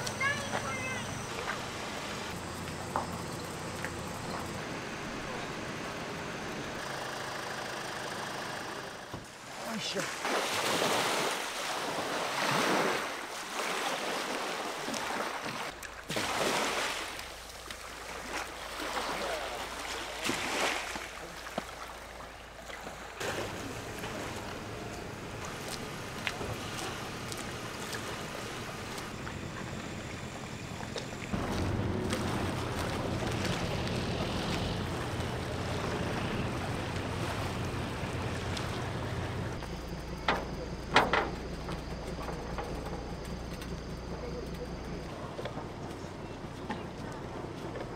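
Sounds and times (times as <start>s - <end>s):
boat engine humming: 0.0s - 47.9s
water noise: 0.0s - 47.9s
wind: 0.0s - 47.9s
sea waves washing in: 9.3s - 22.3s, 23.1s - 39.6s.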